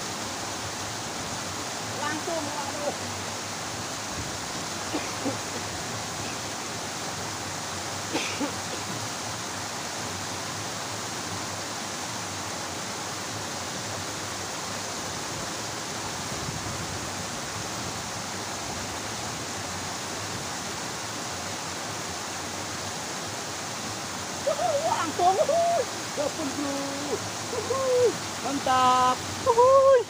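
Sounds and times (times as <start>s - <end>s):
stream water tumbling over drop: 0.0s - 30.0s.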